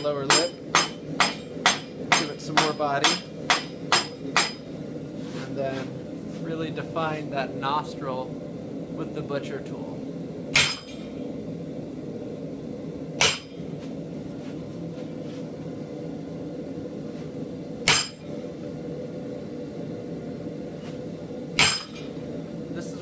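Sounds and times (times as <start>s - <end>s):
hammer striking metal tool: 0.0s - 4.6s, 10.6s - 11.1s, 13.2s - 13.5s, 17.9s - 18.2s, 21.6s - 22.1s.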